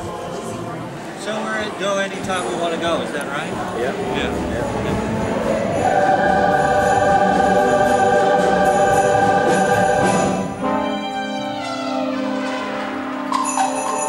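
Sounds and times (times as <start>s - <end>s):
choir and instruments holding chords: 0.0s - 1.2s, 2.5s - 14.0s
jingle bells shaken: 13.3s - 14.0s.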